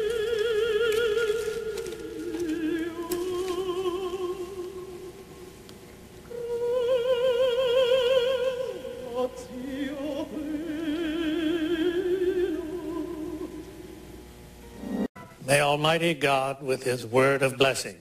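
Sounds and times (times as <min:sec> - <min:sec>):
operatic voice singing: 0:06.3 - 0:13.6.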